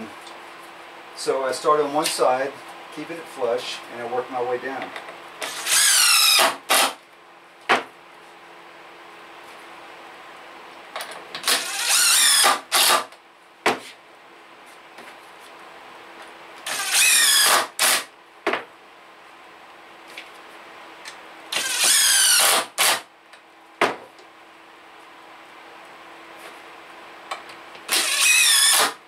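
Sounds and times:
impact driver driving screws: 5.4s - 7.0s, 11.4s - 13.1s, 16.7s - 18.1s, 21.5s - 23.0s, 27.9s - 29.0s.

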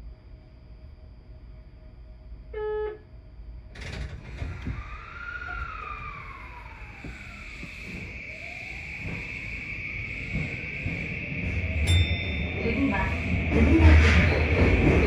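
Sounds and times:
train motor whine: 3.7s - 15.0s.

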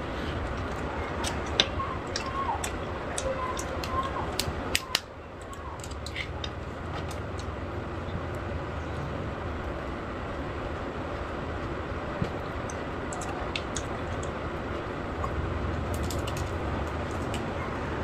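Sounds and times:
steady low rumble: 0.0s - 18.0s
crab shell cracking and chewing: 0.6s - 7.6s, 12.6s - 14.4s.

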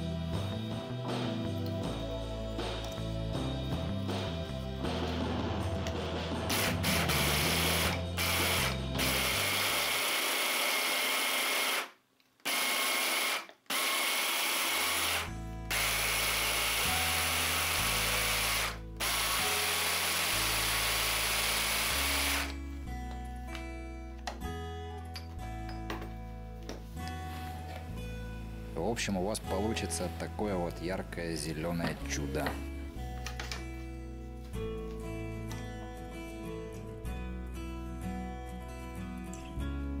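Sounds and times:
background music: 0.0s - 11.7s, 13.7s - 40.0s
hand blender whirring: 6.5s - 22.6s.

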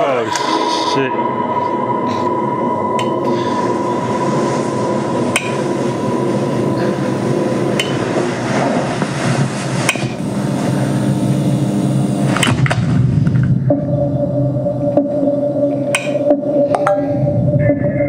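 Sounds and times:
sharp metallic hit: 0.0s - 8.1s, 13.6s - 17.9s
dense drone: 0.0s - 18.0s.

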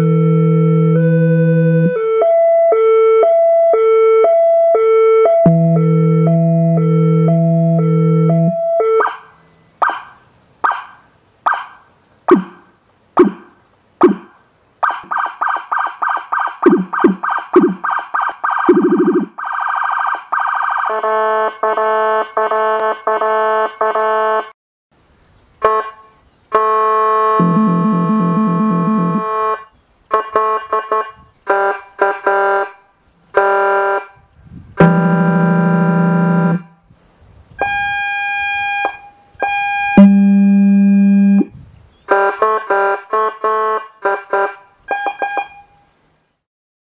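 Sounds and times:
electronic siren tones: 0.0s - 24.4s, 26.6s - 32.6s, 37.6s - 41.5s, 44.1s - 45.9s
electronic air horn blasts: 20.9s - 24.5s, 25.6s - 34.2s, 34.8s - 36.8s, 37.6s - 41.5s, 42.1s - 45.9s.

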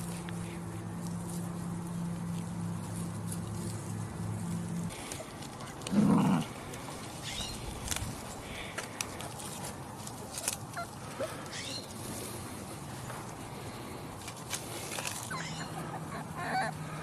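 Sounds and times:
puppies squeaking and yipping: 7.2s - 7.7s, 10.4s - 11.9s, 15.2s - 16.9s
low puppy sound: 15.3s - 16.8s.

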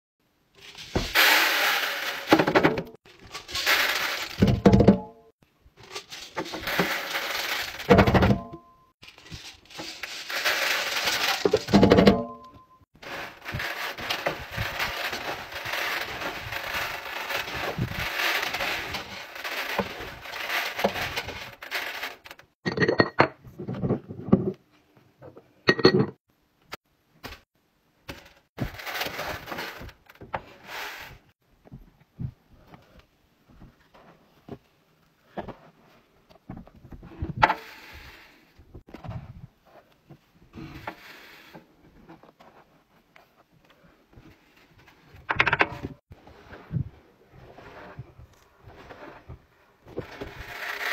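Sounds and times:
sharp clicks of pellets: 0.6s - 2.4s
scent beads pouring onto steel drum: 0.6s - 4.6s, 5.9s - 7.9s, 9.0s - 11.8s, 13.0s - 22.3s, 50.2s - 50.9s.

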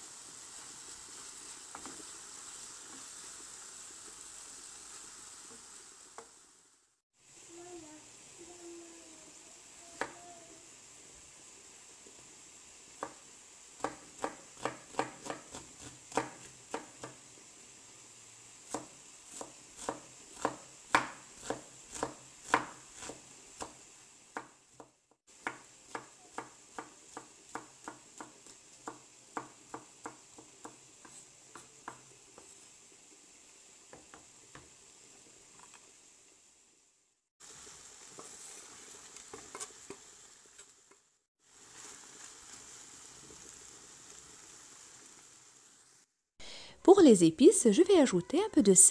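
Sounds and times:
knife chopping on wooden board: 13.8s - 17.2s, 18.7s - 23.8s.

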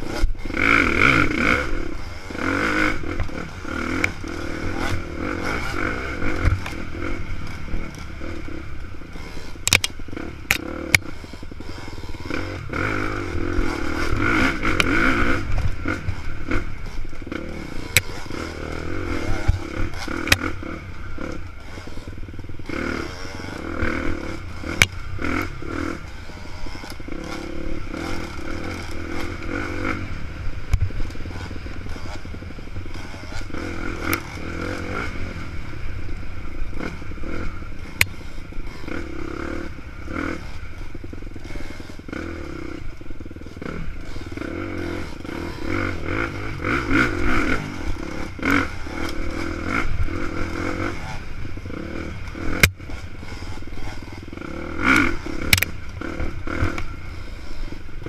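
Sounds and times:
dirt bike engine revving: 0.0s - 58.0s.

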